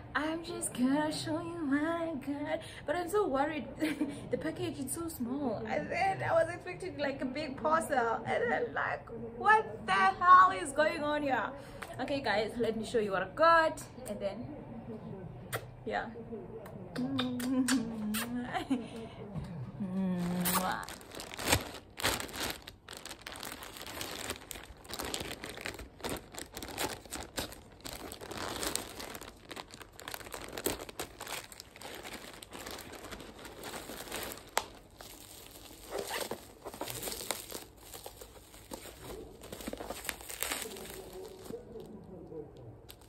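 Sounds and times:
bubble wrap crinkling: 20.1 - 43.0
plastic bag crinkling: 20.2 - 42.0.

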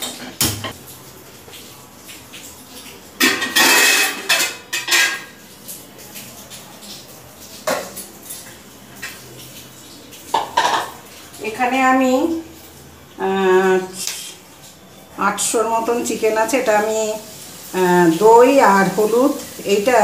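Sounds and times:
metal pots and utensils clattering: 0.0 - 0.8, 3.2 - 5.4, 7.6 - 9.3, 10.3 - 11.2.

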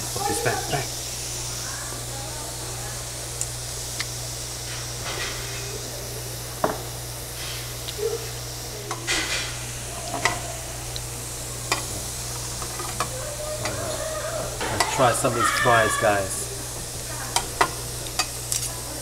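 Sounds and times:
meat sizzling on a grill: 0.0 - 19.0
steady low hum: 0.0 - 19.0
metal tongs clicking on grill: 3.4 - 4.2, 10.1 - 13.8, 14.6 - 15.2, 17.3 - 18.8.

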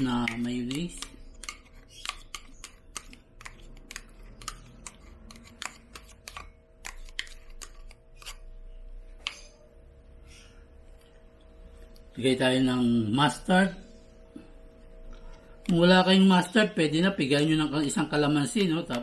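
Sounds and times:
metal spoon scraping plastic cup: 0.6 - 8.6.

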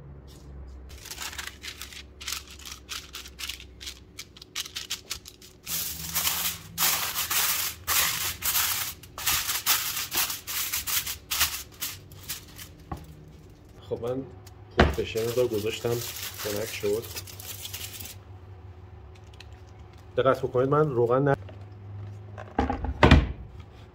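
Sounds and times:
aluminium foil crinkling: 0.9 - 14.2, 14.9 - 18.2, 19.1 - 21.1.

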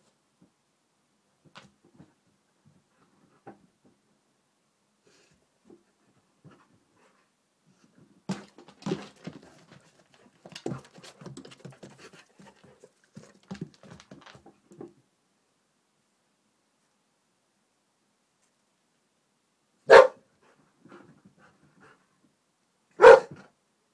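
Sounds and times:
dog footsteps: 8.3 - 15.0.

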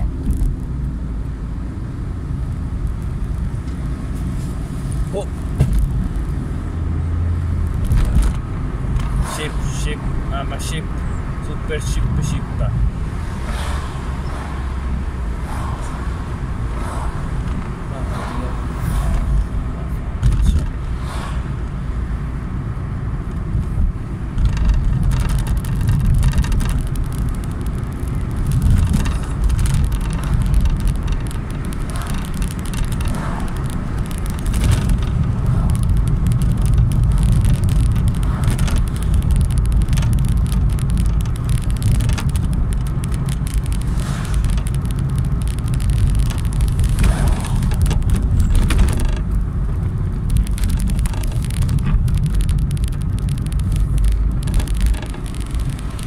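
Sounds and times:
moving car rumble: 0.0 - 56.0
faint clicks: 24.4 - 49.4, 50.2 - 56.0.

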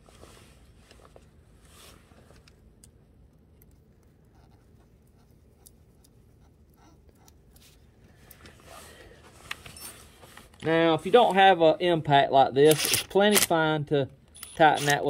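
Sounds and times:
small metal clicks and scrapes: 14.3 - 15.0.

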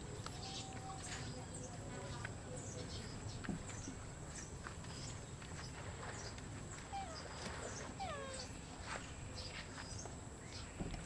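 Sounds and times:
low background noise: 0.0 - 11.0
monkey calling: 6.9 - 8.6.

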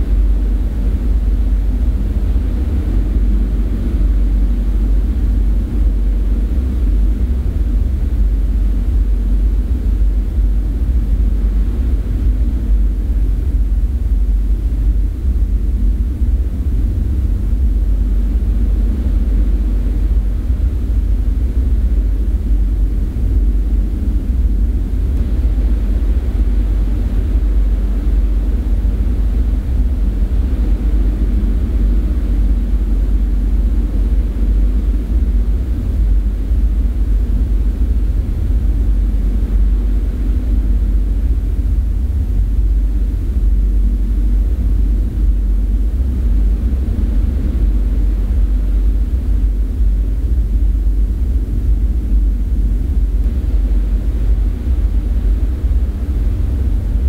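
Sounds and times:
deep rumbling drone: 0.0 - 57.0.

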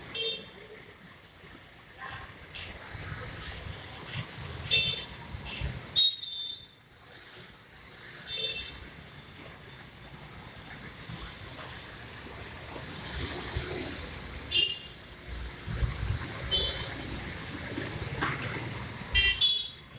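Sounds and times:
vehicle engines din: 0.0 - 19.9
car horn toots: 19.2 - 19.8.

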